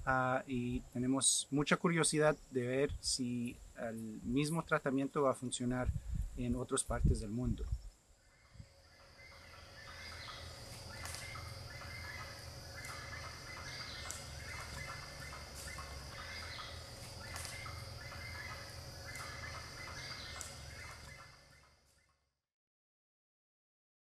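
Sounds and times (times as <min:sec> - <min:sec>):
high insect whine: 0:00.0 - 0:22.1
bird calls: 0:07.7 - 0:22.1.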